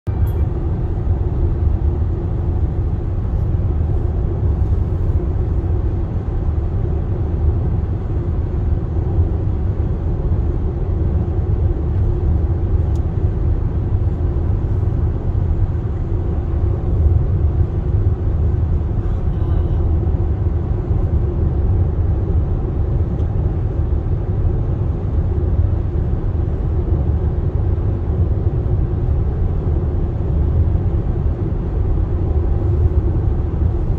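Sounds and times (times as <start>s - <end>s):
car cabin road rumble: 0.1s - 33.9s.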